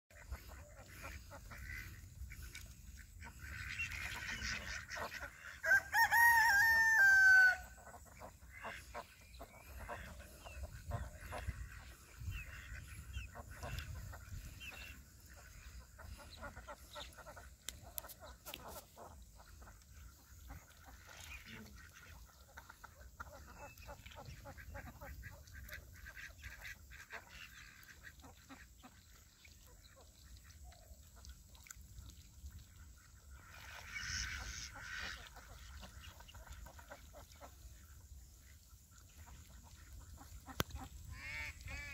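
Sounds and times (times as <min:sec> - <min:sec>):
ducks quacking: 0:00.1 - 0:41.9
rooster crowing: 0:05.7 - 0:07.7.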